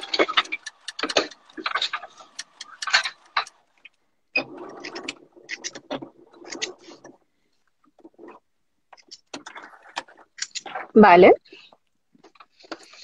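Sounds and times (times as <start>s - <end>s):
sewing machine stitching: 0.0s - 7.1s.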